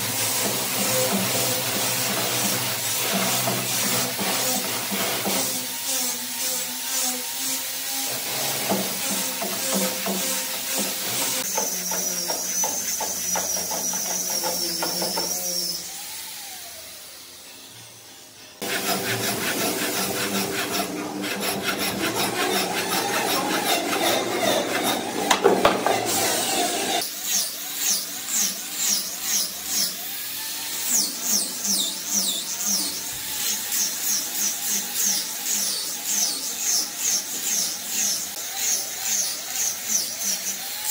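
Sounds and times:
steady high tool whine: 0.0s - 31.0s
woodworking tools cutting wood: 0.0s - 40.9s.

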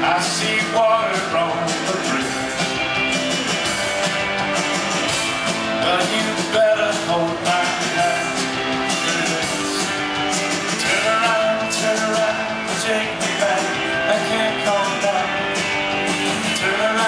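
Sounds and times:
drums: 0.0s - 17.0s
electric guitar: 0.0s - 17.0s
live rock band playing: 0.0s - 17.0s.

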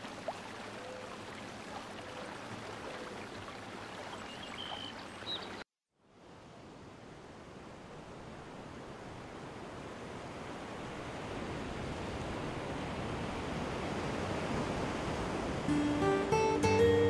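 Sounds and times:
surf-like rushing noise: 6.4s - 16.6s.

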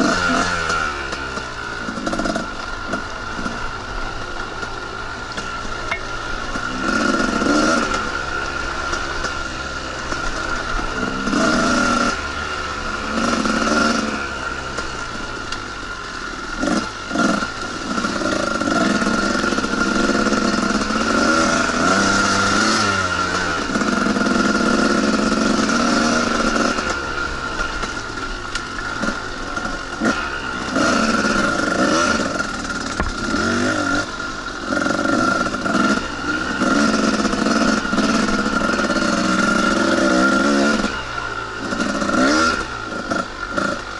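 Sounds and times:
dirt bike engine revving: 0.0s - 43.9s.

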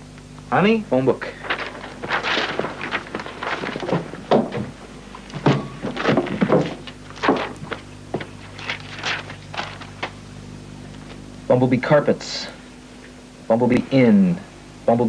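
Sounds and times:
pages flipping: 1.3s - 10.2s.

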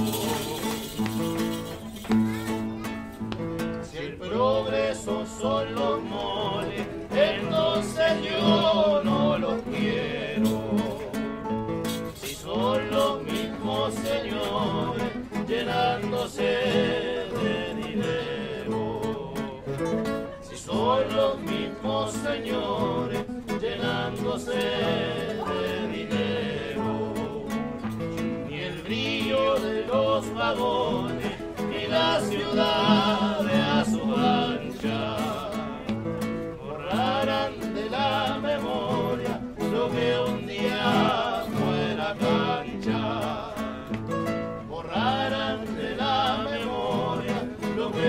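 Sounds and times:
person singing: 0.0s - 2.9s, 12.2s - 27.9s, 28.5s - 36.0s
acoustic guitars strumming: 0.0s - 48.0s.

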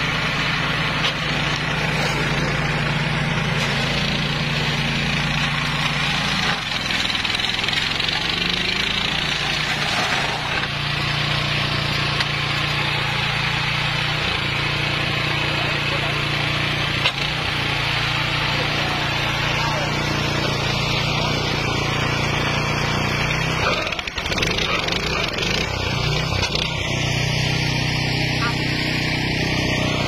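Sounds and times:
rotor chopping dry grass: 0.0s - 30.0s
small petrol engine running: 0.0s - 30.0s.

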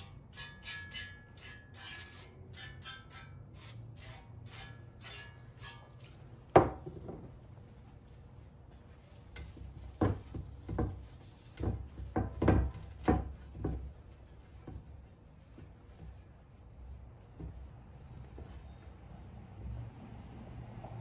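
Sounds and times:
knock on wooden workbench: 6.6s - 7.3s, 11.6s - 13.8s
towel thumping and rubbing: 9.4s - 16.2s.

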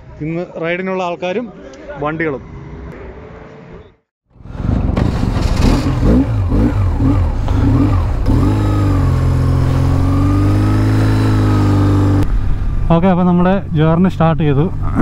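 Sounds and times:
motorcycle engine accelerating: 4.4s - 12.8s.

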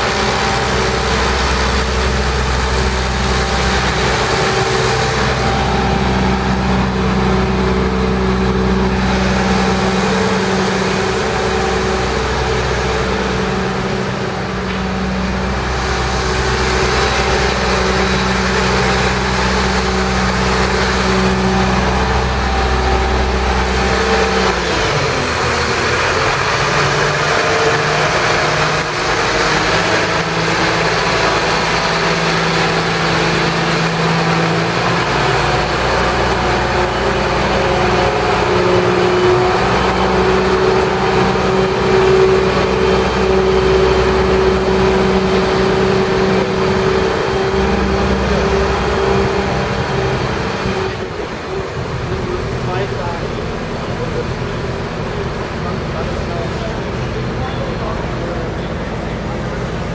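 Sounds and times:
deep engine rumble: 0.0s - 59.9s
heavy vehicle engines idling: 0.0s - 59.9s
steady engine hum: 0.0s - 59.9s.

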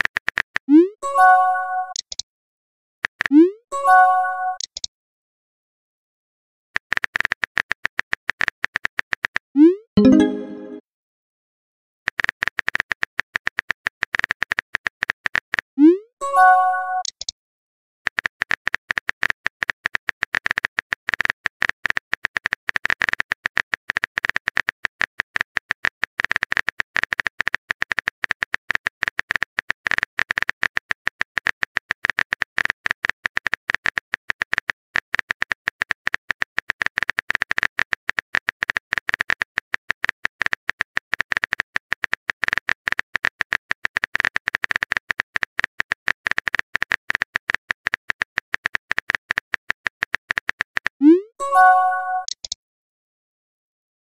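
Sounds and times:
phone keyboard typing clicks: 1.4s - 2.2s, 3.0s - 4.9s, 16.8s - 17.3s, 25.6s - 52.6s.

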